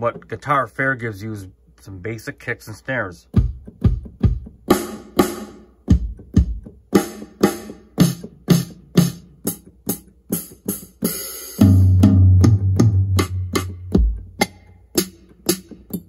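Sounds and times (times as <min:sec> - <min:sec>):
drum hits: 0:03.3 - 0:15.9.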